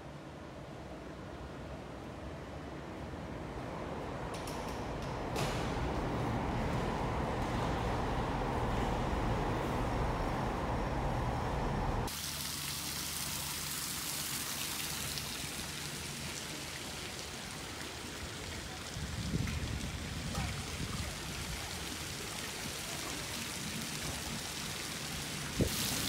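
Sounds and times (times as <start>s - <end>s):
low indoor rumble: 0.7s - 12.1s
fountain water splashing: 12.0s - 26.0s.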